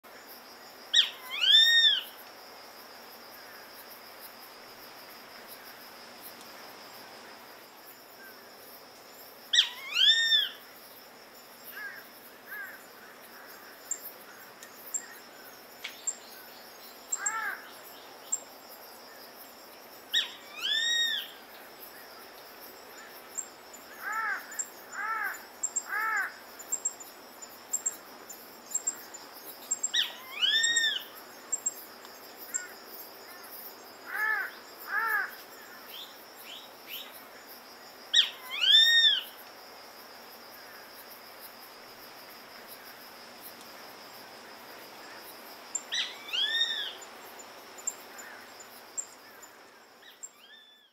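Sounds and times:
insects chirring: 0.0s - 50.9s
softer lower bird calls: 45.8s - 47.0s, 50.1s - 50.9s.

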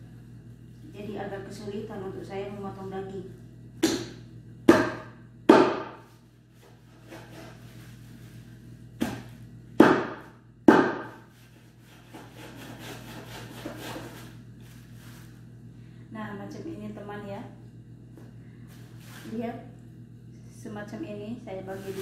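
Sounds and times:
knife chopping into carcass: 3.8s - 6.0s, 9.0s - 11.2s.

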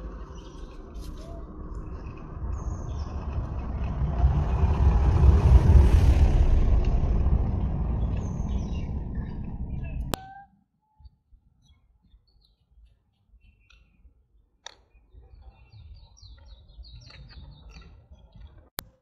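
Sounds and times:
vehicle passing by: 0.0s - 10.2s.

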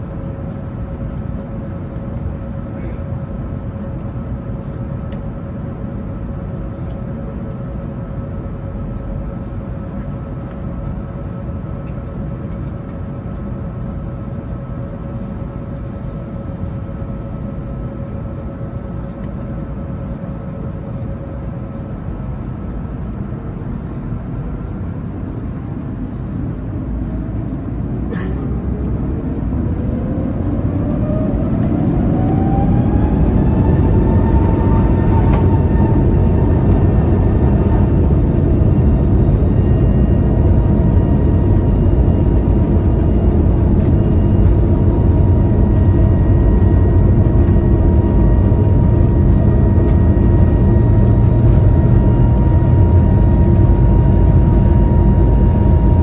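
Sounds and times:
jet engine whine: 0.0s - 56.0s
engine roar: 24.8s - 56.0s.

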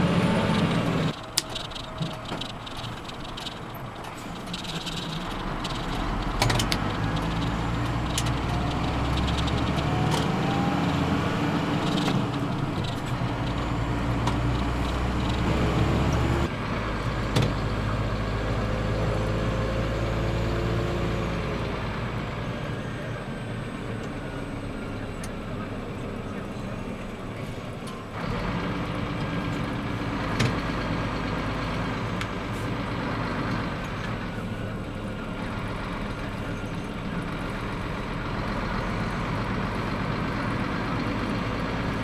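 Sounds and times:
diesel truck engine running: 0.0s - 42.0s
sharp clicks: 4.4s - 10.4s.

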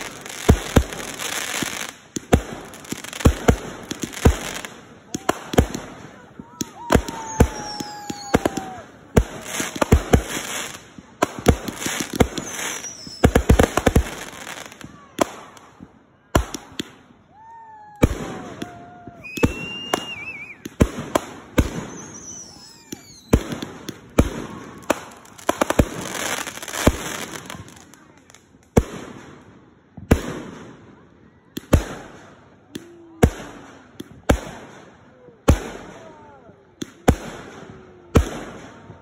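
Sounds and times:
fireworks popping in volleys: 0.0s - 15.0s, 18.3s - 28.7s
whistling fireworks: 0.0s - 28.2s.

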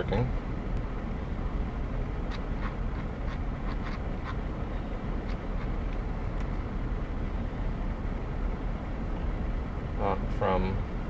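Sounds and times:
low vehicle rumble: 0.0s - 11.0s.

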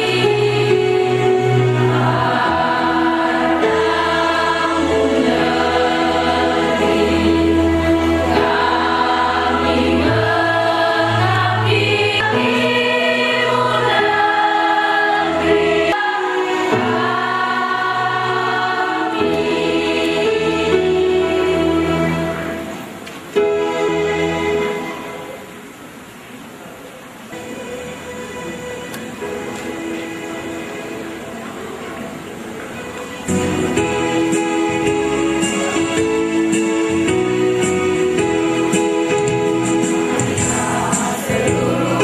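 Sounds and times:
women singing together: 0.0s - 22.0s, 40.2s - 42.0s
instrumental accompaniment: 0.0s - 25.7s, 27.3s - 42.0s.

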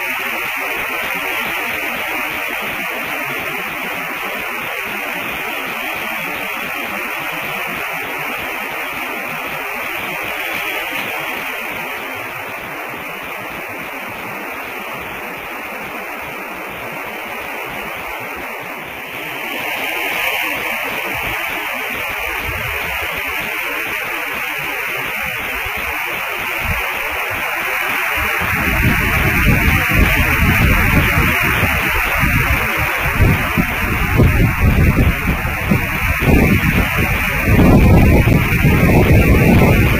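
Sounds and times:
static hiss: 0.0s - 39.9s.

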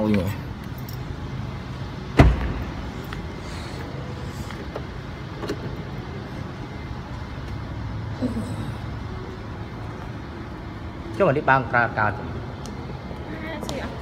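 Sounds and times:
low background hum: 0.0s - 14.0s
heavy thump: 2.2s - 2.8s.

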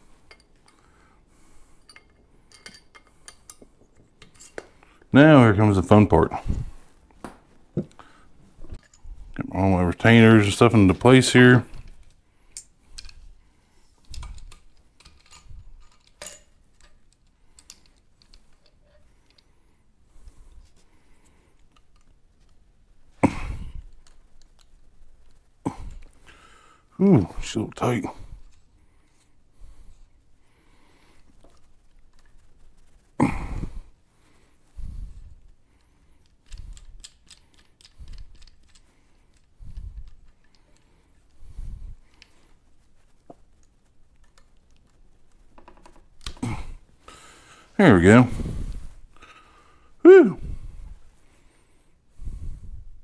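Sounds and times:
small metallic clicks and clinks: 0.3s - 0.9s, 1.8s - 4.9s, 14.0s - 19.5s, 35.8s - 40.9s.

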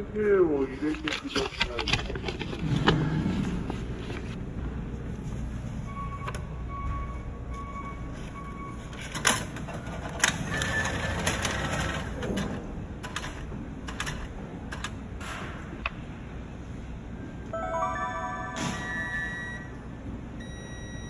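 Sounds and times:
ticket machine beeping: 17.5s - 21.0s.

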